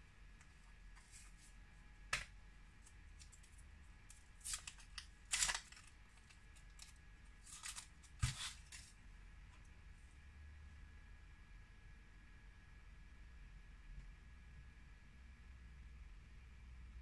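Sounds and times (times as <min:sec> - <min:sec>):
scratchy rustles and scrapes: 0:00.9 - 0:01.6, 0:06.7 - 0:09.0.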